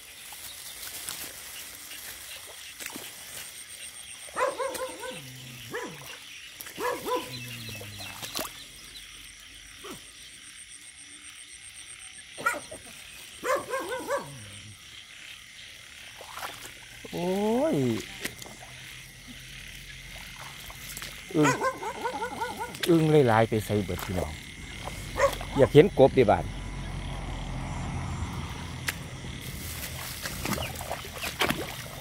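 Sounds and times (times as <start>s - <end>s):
frogs croaking: 0.0s - 32.0s.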